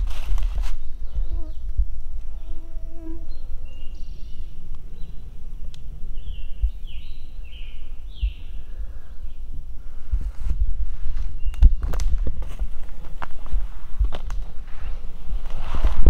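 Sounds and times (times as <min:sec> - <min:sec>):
footsteps in leaf litter: 0:00.0 - 0:00.9
songbird singing: 0:00.0 - 0:13.4.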